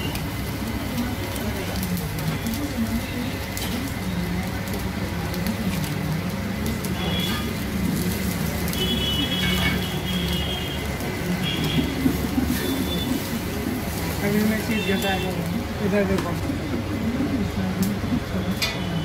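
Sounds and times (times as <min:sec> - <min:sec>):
flatbread sizzling on griddle: 0:00.0 - 0:19.0
low murmur of voices: 0:00.0 - 0:19.0.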